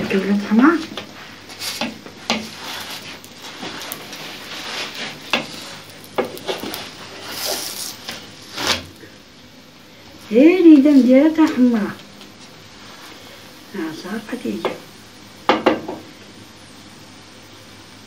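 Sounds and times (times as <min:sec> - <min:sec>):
low sizzle: 0:00.0 - 0:18.0
spatula scraping metal pan: 0:01.6 - 0:07.9.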